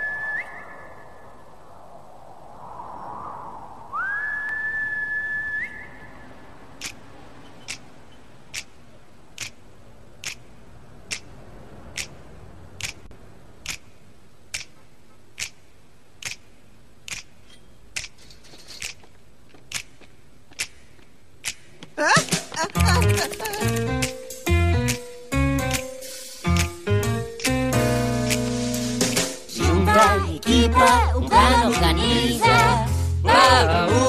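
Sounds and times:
person whistling: 0.0s - 0.8s, 3.9s - 6.0s
finger snaps: 14.5s - 14.8s, 15.4s - 15.6s, 17.1s - 17.3s, 21.4s - 21.7s.

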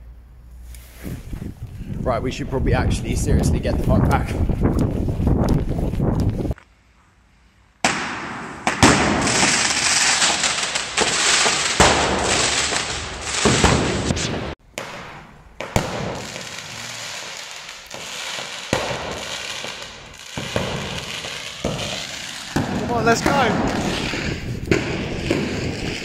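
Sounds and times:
fireworks crackling: 7.8s - 26.0s
scattered fireworks pops: 7.8s - 26.0s.

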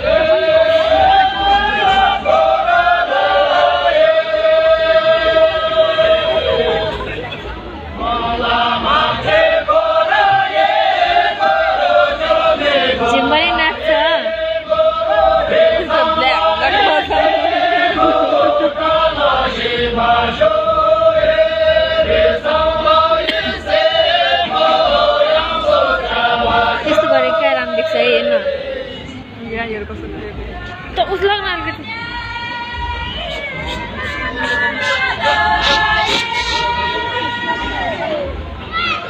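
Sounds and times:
group of voices singing in unison: 0.0s - 7.3s, 7.9s - 29.4s, 31.9s - 38.4s.

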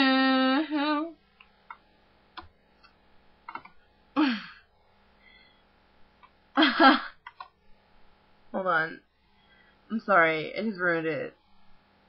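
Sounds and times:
breathy sigh: 4.2s - 5.6s.

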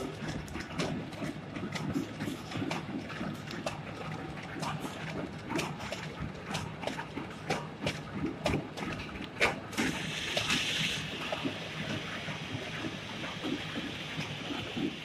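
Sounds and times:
steady machine hiss: 9.9s - 15.0s.

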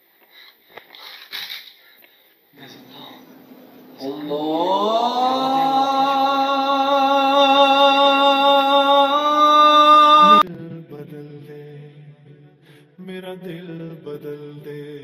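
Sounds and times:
low chant-like music: 3.6s - 15.0s
long sung note: 4.0s - 10.4s.

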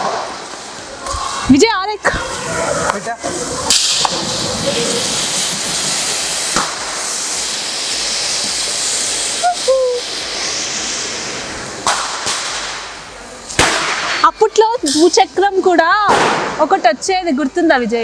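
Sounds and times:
firecracker cracks: 0.0s - 1.3s, 2.9s - 11.2s, 11.8s - 15.2s, 16.0s - 16.7s
fountain fireworks hissing: 0.0s - 18.0s.

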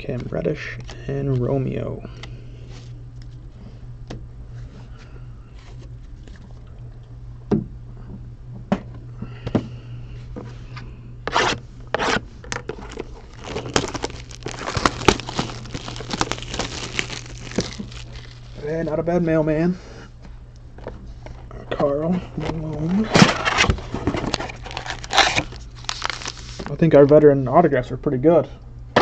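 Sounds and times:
steady low hum: 0.0s - 29.0s
wrapper crinkling: 12.6s - 18.7s, 22.8s - 26.8s
wrapper ripping: 12.7s - 18.7s, 23.0s - 26.8s.

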